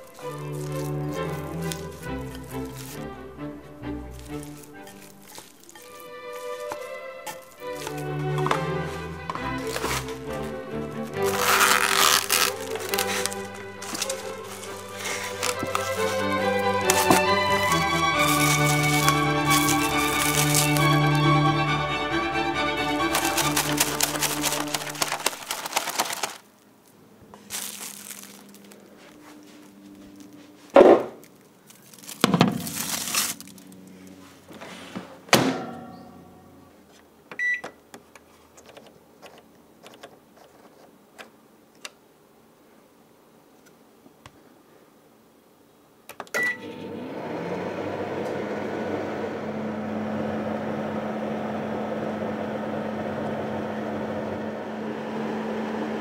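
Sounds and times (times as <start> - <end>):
microwave oven humming: 46.3 - 56.0.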